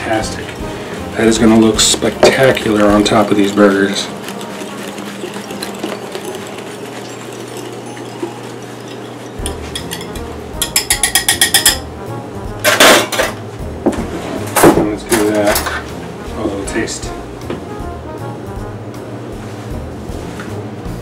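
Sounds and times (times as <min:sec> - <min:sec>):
whisk tapping glass bowl: 0:01.4 - 0:11.9.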